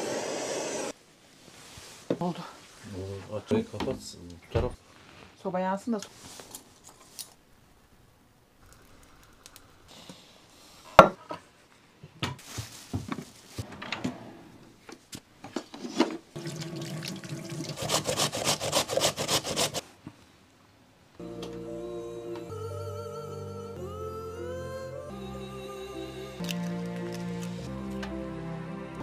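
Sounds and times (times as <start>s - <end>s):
food grated on metal grater: 17.7s - 19.8s.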